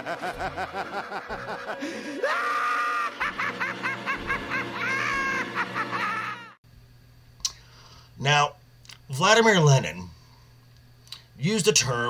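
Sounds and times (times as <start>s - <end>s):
cartoon maniacal cackling: 0.0s - 6.6s
high-pitched shriek of laughter: 0.0s - 6.6s.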